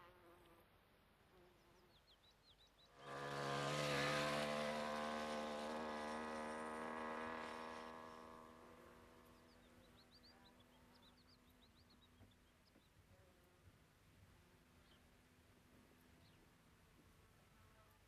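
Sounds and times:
two-stroke moped engine running: 3.0s - 9.5s.

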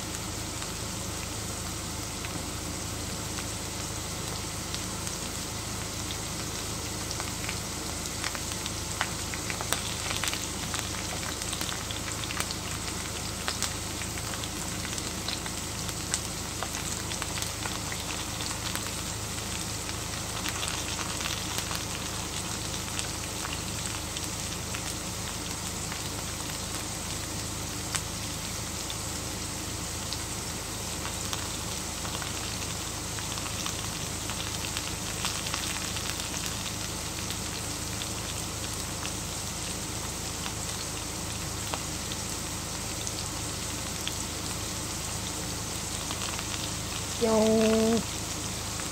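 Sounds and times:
oil popping and crackling: 0.0s - 48.9s
potatoes sizzling in oil: 0.0s - 48.9s.

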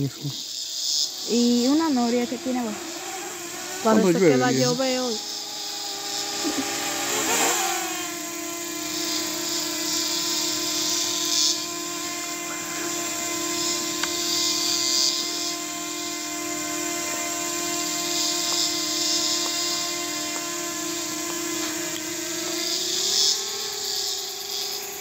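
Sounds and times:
drone propellers whining: 0.0s - 25.0s.

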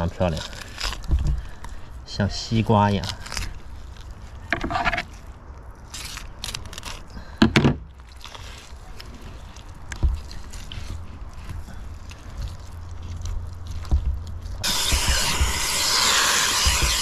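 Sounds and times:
knife scraping and knocking: 4.5s - 5.1s.

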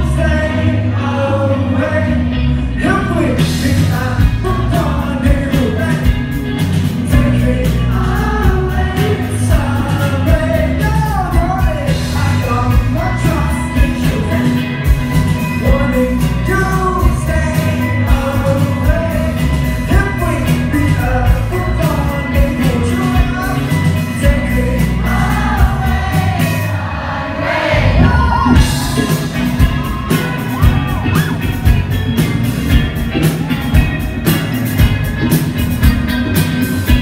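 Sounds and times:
man singing: 0.0s - 26.7s
live pop-rock band playing: 0.0s - 37.0s.

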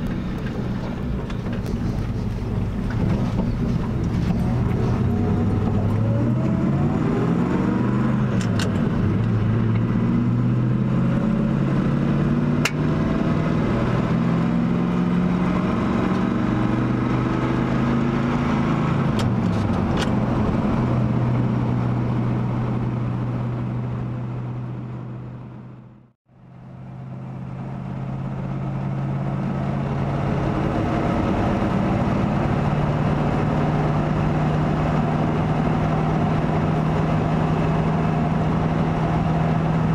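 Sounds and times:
truck engine from inside cab: 0.0s - 39.9s.

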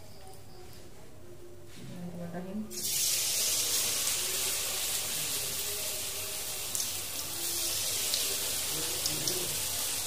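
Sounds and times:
fritters sizzling in oil: 2.7s - 10.0s.

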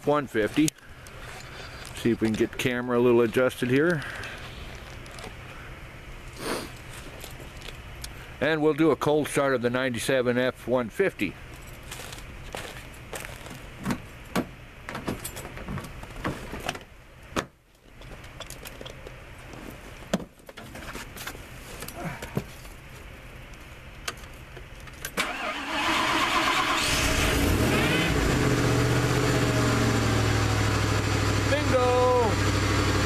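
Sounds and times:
truck engine starting and idling: 25.0s - 33.0s.

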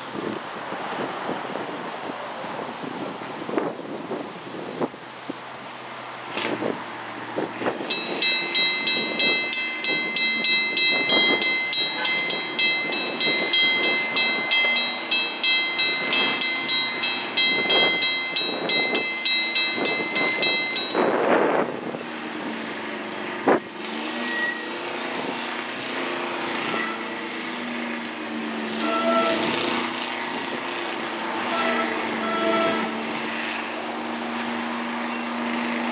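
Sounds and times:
crossing warning bell ringing: 7.8s - 21.8s, 26.5s - 27.6s, 28.7s - 29.5s, 31.4s - 33.2s.

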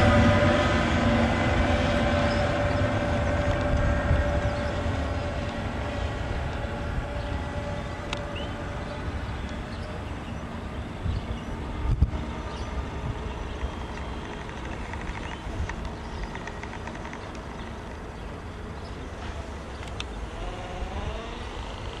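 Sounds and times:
train wheels rumbling: 0.0s - 22.0s
wavering whine: 0.0s - 22.0s
rapid clicks: 13.6s - 18.0s.

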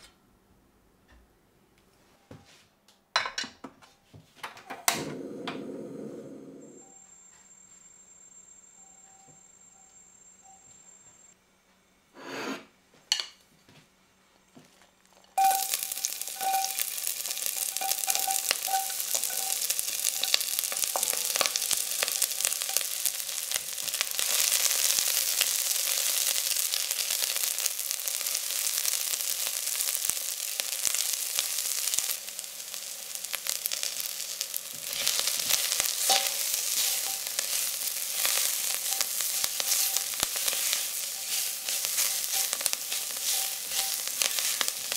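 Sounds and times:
onions sizzling in oil: 14.7s - 44.9s
spatula stirring: 15.4s - 28.6s, 30.5s - 44.9s.

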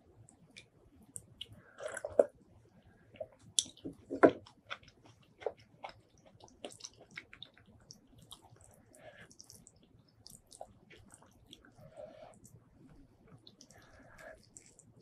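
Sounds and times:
wet chewing with smacks: 3.2s - 12.6s, 13.3s - 15.0s.

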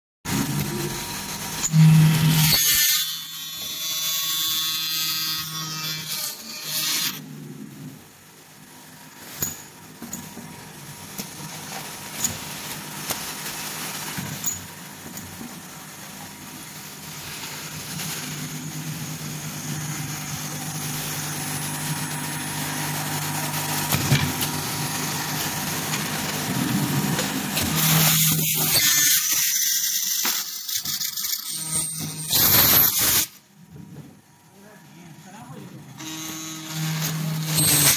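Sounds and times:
machine humming: 9.4s - 28.8s.

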